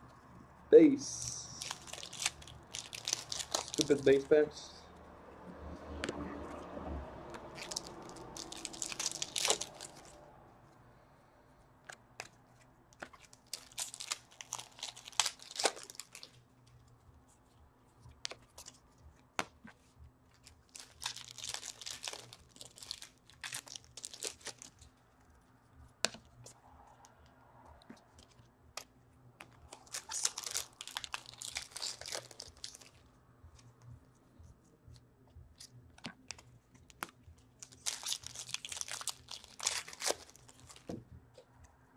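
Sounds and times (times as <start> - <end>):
card wrappers tearing and crinkling: 1.0 - 4.6, 7.4 - 10.2, 13.0 - 16.4, 20.3 - 24.9, 28.1 - 33.0, 36.1 - 41.0.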